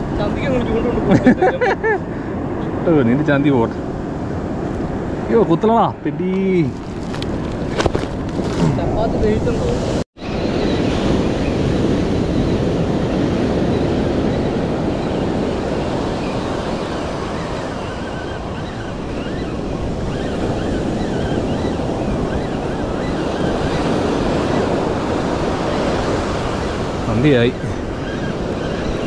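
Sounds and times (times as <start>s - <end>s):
surf breaking on a beach: 0.0s - 29.0s
wind buffeting the microphone: 0.0s - 29.0s.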